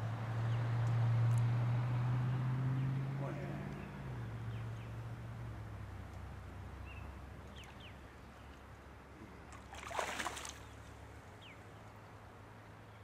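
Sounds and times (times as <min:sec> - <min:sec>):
fish splashing at the surface: 0:09.5 - 0:10.9.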